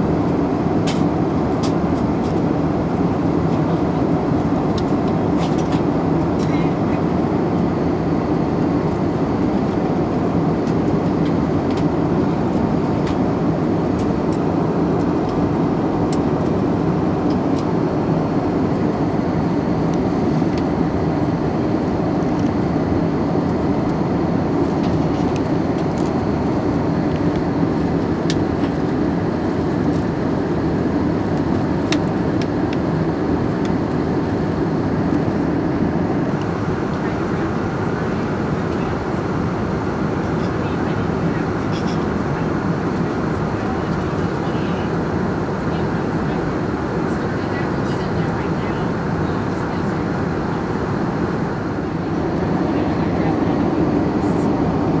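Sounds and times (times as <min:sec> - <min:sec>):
airplane cabin engine rush: 0:00.0 - 0:55.0.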